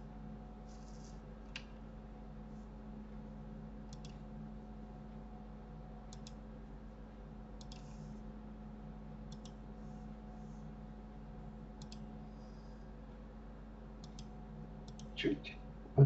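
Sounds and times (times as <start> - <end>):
low electrical hum: 0.0 - 16.0
computer mouse clicks: 3.9 - 4.2, 6.1 - 6.4, 7.6 - 8.1, 9.3 - 9.6, 11.8 - 12.1, 14.0 - 15.2.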